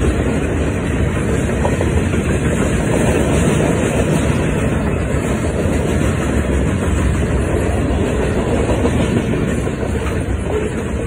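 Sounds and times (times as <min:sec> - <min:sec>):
freight train wheels rumbling: 0:00.0 - 0:11.0.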